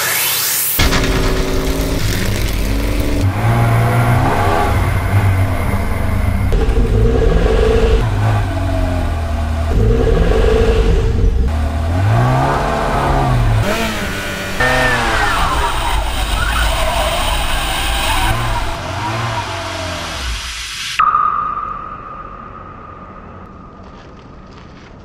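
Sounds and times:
car engine revving: 0:00.8 - 0:20.5.

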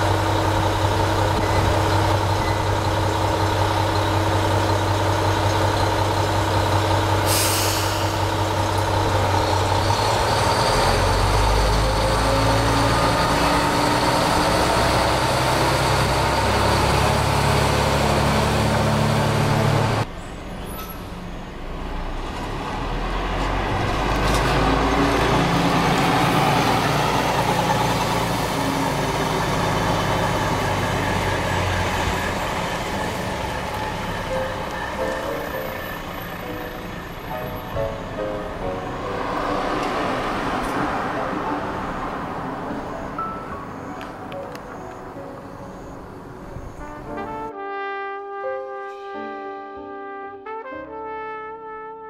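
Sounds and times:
vehicle engine hum: 0:00.0 - 0:07.3
diesel railcar engine: 0:00.0 - 0:47.3
air brakes hissing: 0:07.2 - 0:08.4.

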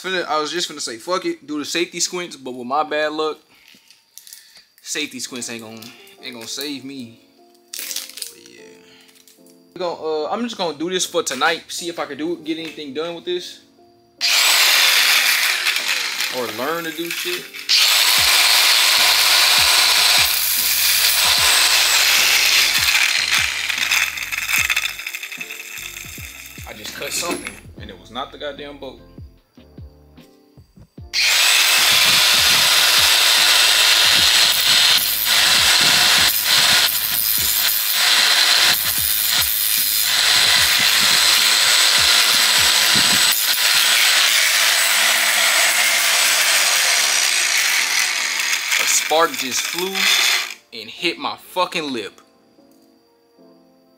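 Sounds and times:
angle grinder cutting steel: 0:14.2 - 0:27.6, 0:31.2 - 0:50.6.

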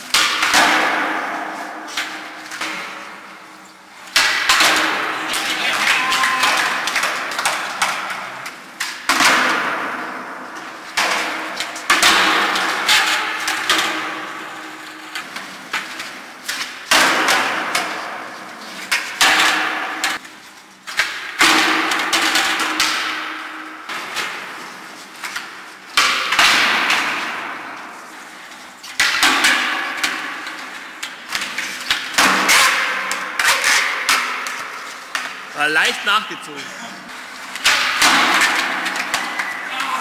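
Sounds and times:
skateboard landings slapping: 0:00.1 - 0:03.3, 0:04.1 - 0:14.5, 0:37.6 - 0:39.9
skateboard wheels rolling: 0:04.0 - 0:09.3.

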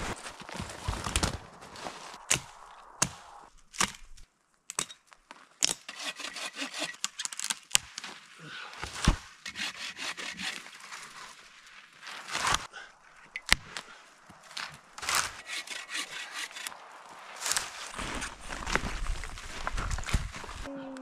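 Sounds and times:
hand saw rasping through wood: 0:05.9 - 0:07.0, 0:09.5 - 0:10.7, 0:15.4 - 0:16.7
wood cracking and snapping: 0:06.8 - 0:08.1.

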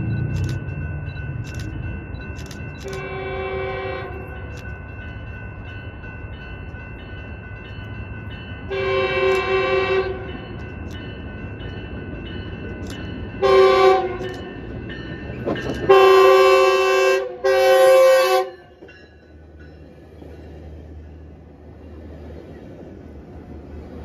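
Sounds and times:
train rumbling past: 0:00.0 - 0:24.0
train horn blasts: 0:02.9 - 0:04.4, 0:08.7 - 0:10.3, 0:13.4 - 0:14.3, 0:15.8 - 0:18.7.

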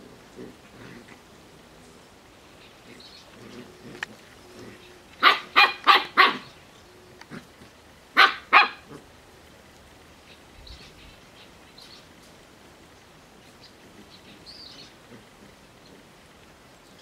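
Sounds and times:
puppy barking: 0:05.2 - 0:06.5, 0:08.2 - 0:09.0.

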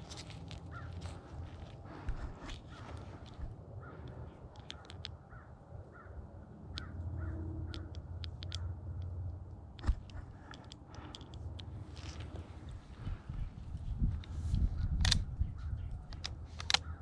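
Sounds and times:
light clicks: 0:07.7 - 0:12.8.

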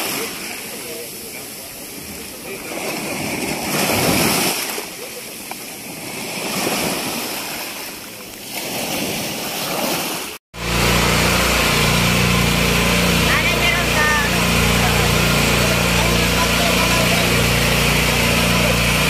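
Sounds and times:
water lapping and splashing: 0:00.0 - 0:19.0
small boat engine running: 0:10.6 - 0:19.0.

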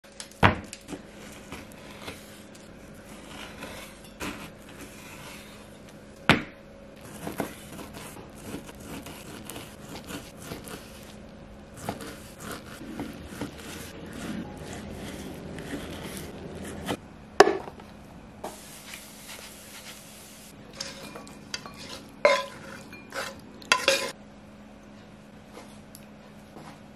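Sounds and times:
knife cutting on wooden board: 0:07.0 - 0:11.1, 0:11.8 - 0:17.0.

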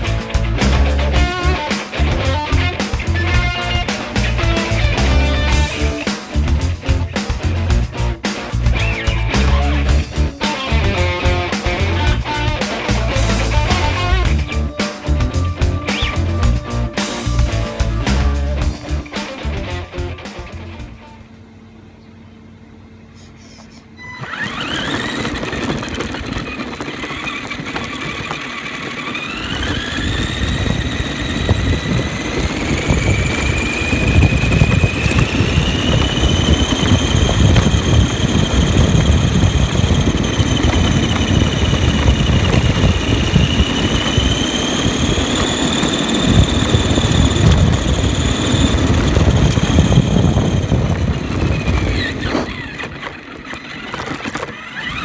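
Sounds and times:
electric motor and gears whining: 0:00.0 - 0:55.0
tyres and chassis rumbling: 0:00.0 - 0:55.0.

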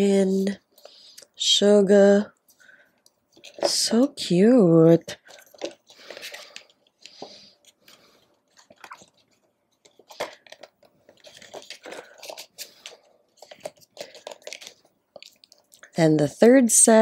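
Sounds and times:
cards and box being handled: 0:03.3 - 0:04.3, 0:05.1 - 0:15.7.

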